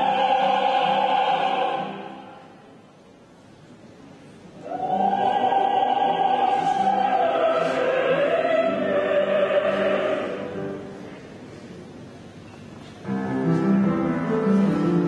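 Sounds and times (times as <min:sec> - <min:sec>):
choir singing chords: 0:00.0 - 0:02.8, 0:04.6 - 0:11.0.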